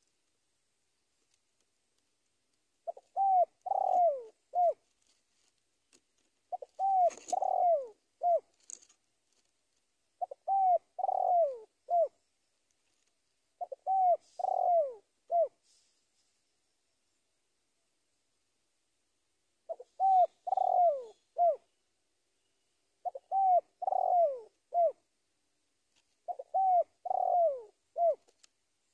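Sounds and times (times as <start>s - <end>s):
dove cooing: 2.8s - 4.8s, 6.5s - 8.6s, 10.2s - 12.2s, 13.6s - 15.7s, 19.7s - 21.7s, 23.0s - 25.1s, 26.2s - 28.4s.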